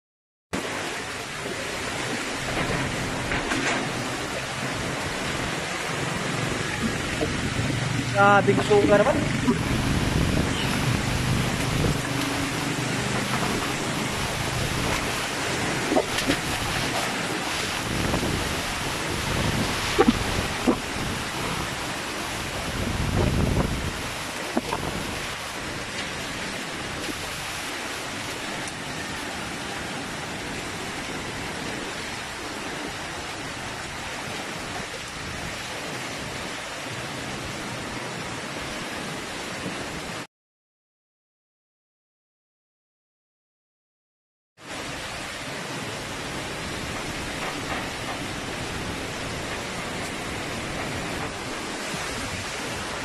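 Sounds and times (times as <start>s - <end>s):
heavy rain: 0.6s - 40.3s, 44.6s - 53.0s
wind gusting: 1.7s - 34.2s.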